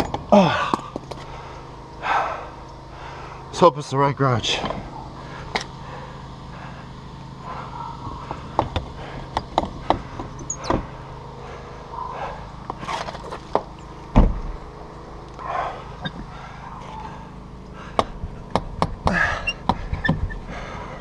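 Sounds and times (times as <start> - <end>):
heavy thump: 14.2 - 14.6.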